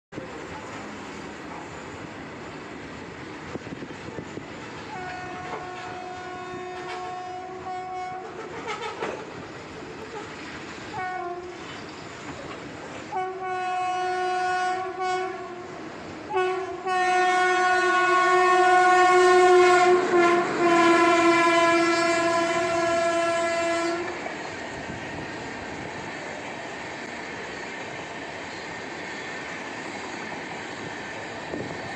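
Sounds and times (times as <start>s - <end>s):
train coaches clattering past: 0.1s - 31.9s
train horn blasts: 4.8s - 9.1s, 10.9s - 11.7s, 13.1s - 24.3s.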